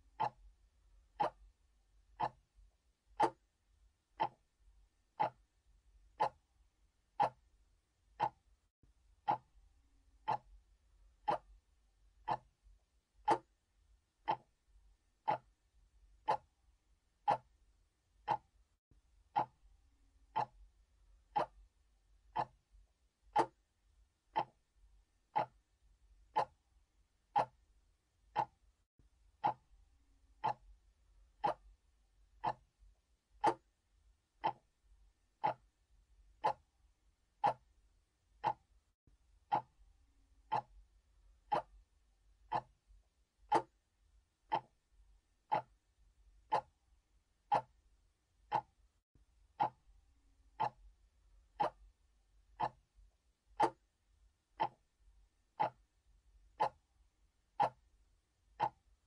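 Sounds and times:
mechanical clock ticking: 0.0 - 0.4, 1.2 - 1.4, 2.2 - 2.5, 3.1 - 3.4, 4.2 - 4.5, 5.2 - 5.5, 6.1 - 6.5, 7.2 - 7.5, 8.1 - 8.5, 9.2 - 9.6, 10.2 - 10.6, 11.2 - 11.6, 12.2 - 12.6, 13.2 - 13.6, 14.2 - 14.6, 15.2 - 15.6, 16.2 - 16.6, 17.2 - 17.6, 18.2 - 18.6, 19.3 - 19.6, 20.3 - 20.7, 21.3 - 21.7, 22.3 - 22.6, 23.3 - 23.6, 24.3 - 24.7, 25.3 - 26.6, 27.3 - 27.7, 28.3 - 28.7, 29.4 - 29.7, 30.4 - 30.8, 31.4 - 31.8, 32.4 - 32.7, 33.4 - 33.7, 34.4 - 34.8, 35.4 - 35.8, 36.4 - 36.7, 37.4 - 37.7, 38.4 - 38.7, 39.5 - 39.8, 40.4 - 40.8, 41.5 - 41.8, 42.5 - 42.8, 43.5 - 43.8, 44.5 - 44.8, 45.5 - 45.8, 46.4 - 46.8, 47.5 - 47.8, 48.4 - 48.8, 49.6 - 49.9, 50.5 - 50.9, 51.6 - 51.9, 52.6 - 52.9, 53.6 - 53.8, 54.6 - 54.9, 55.6 - 55.9, 56.6 - 56.8, 57.6 - 57.9, 58.6 - 58.9.

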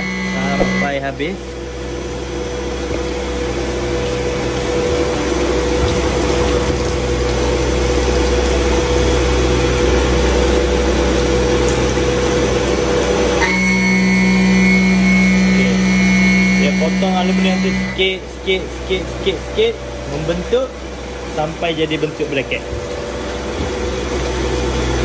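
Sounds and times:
milling machine spindle tone: 0.0 - 1.4, 13.4 - 18.1
low steady machine hum: 0.0 - 25.0.

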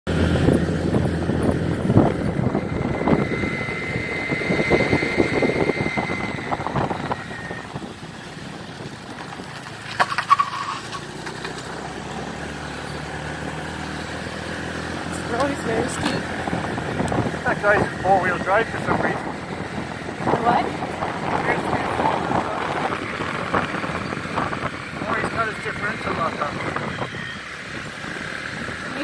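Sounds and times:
wind buffeting microphone: 0.1 - 9.8, 13.3 - 29.0
motorbike engine running: 0.1 - 29.0.

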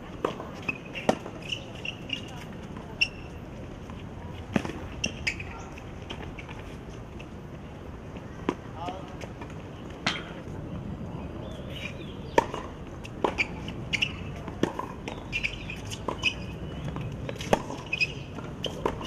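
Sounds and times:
racket strikes and ball bounces: 0.2 - 2.3, 12.3 - 19.0
shoe squeaks: 0.3 - 3.4, 4.9 - 6.7, 11.6 - 19.0.

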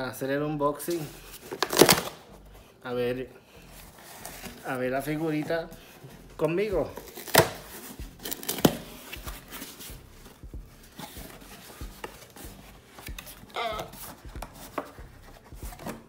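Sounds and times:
cardboard box rustling and scraping: 3.8 - 16.0.

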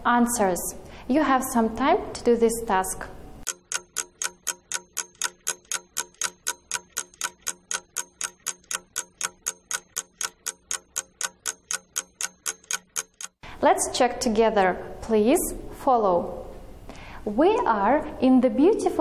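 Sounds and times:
clock ticking: 3.4 - 13.4.

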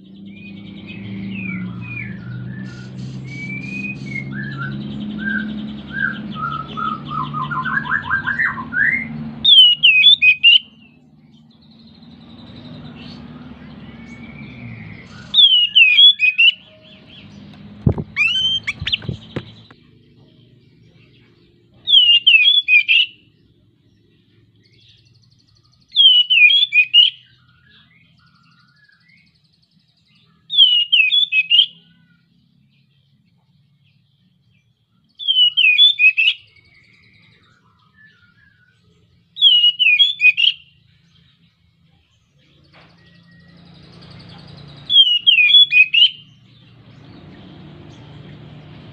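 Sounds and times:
bird singing high phrase: 0.0 - 48.9
sharp knocks: 17.8 - 19.8.

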